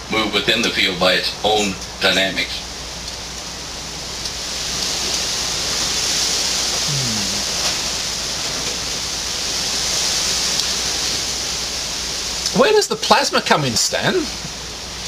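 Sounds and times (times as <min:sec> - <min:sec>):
low steady hum: 0:00.0 - 0:15.0
steady bright hiss: 0:00.1 - 0:15.0
faint low voice: 0:06.9 - 0:07.6.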